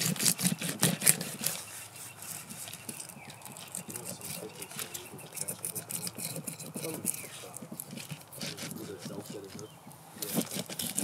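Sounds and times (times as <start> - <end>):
knife cutting fish: 0.0 - 1.7, 10.2 - 11.0
small handling noises: 0.0 - 11.0.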